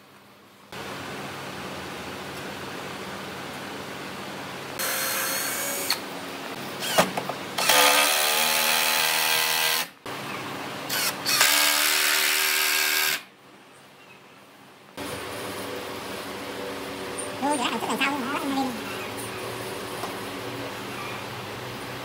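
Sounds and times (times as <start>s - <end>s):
power drill: 4.8s - 6.0s, 6.8s - 9.9s, 10.9s - 13.3s.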